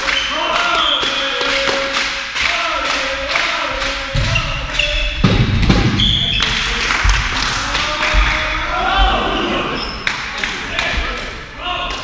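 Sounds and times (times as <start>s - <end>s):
players calling out: 0.0s - 12.0s
shoes squeaking on floor: 9.1s - 10.1s.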